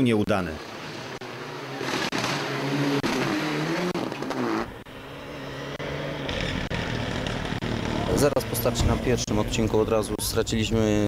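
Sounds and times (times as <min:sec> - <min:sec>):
rally car engine revving: 0:00.6 - 0:09.8.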